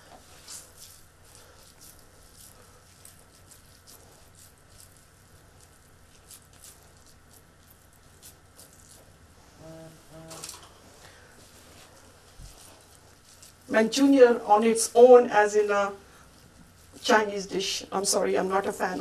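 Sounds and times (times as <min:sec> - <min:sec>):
wet mixture squished by hand: 0:00.2 - 0:09.3.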